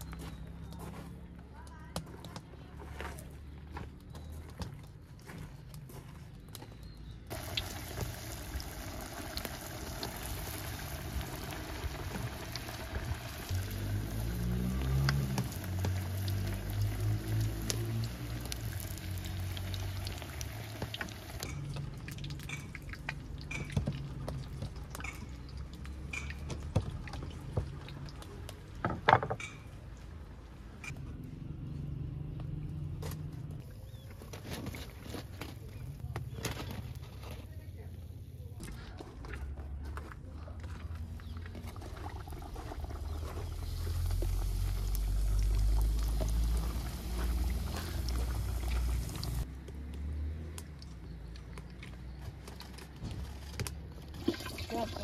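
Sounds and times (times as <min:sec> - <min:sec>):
oil sizzling and bubbling: 0:07.3 - 0:28.8, 0:41.2 - 0:49.5, 0:52.0 - 0:55.0.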